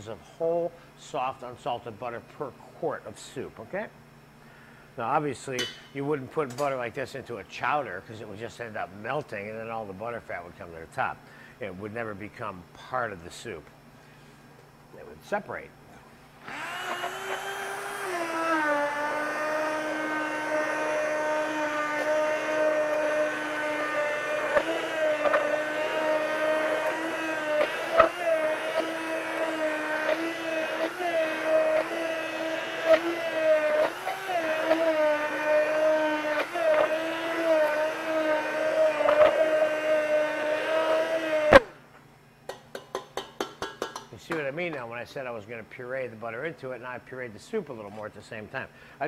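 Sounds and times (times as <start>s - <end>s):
immersion blender motor whine: 16.4s - 41.8s.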